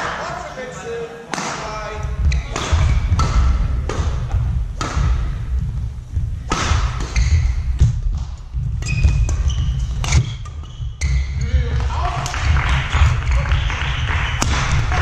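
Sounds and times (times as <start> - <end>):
rackets hitting shuttlecock: 1.3 - 5.5, 6.4 - 13.6, 14.3 - 15.0.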